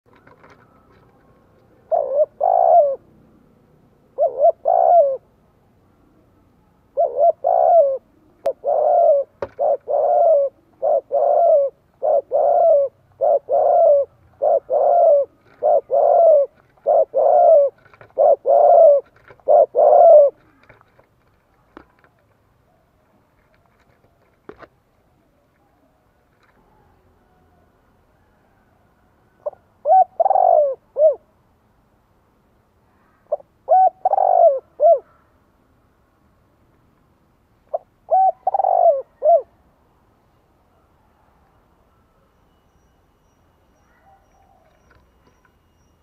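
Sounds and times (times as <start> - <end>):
dove cooing: 0.1 - 3.2, 4.1 - 5.4, 6.2 - 21.0, 26.4 - 31.3, 33.2 - 35.3, 37.7 - 39.6.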